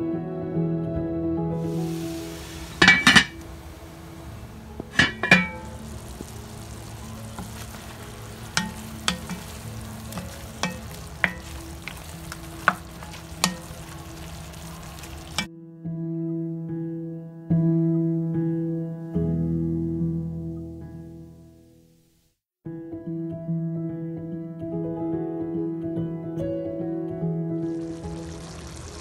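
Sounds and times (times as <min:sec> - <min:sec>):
chicken sizzling in a pot: 0:01.6 - 0:15.5, 0:27.6 - 0:29.0
wooden spoon knocking on pot: 0:02.7 - 0:03.5, 0:04.8 - 0:06.3, 0:07.3 - 0:15.5.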